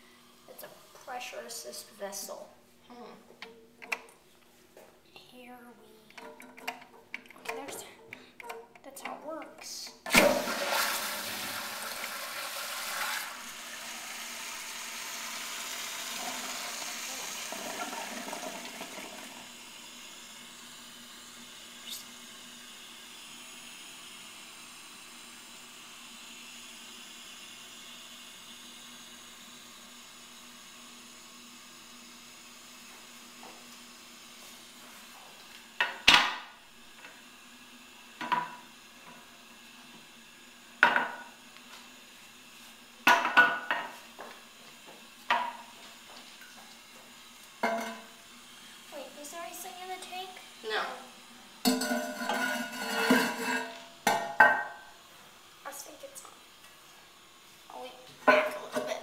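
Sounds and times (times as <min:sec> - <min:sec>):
water refilling hiss: 0:10.1 - 0:29.4
toilet flushing rush: 0:10.1 - 0:33.3, 0:47.1 - 0:53.8.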